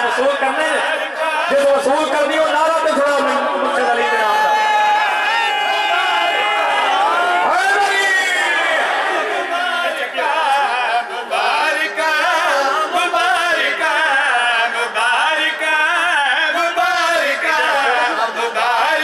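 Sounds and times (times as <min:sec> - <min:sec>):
men chanting into microphone: 0:00.0 - 0:19.0.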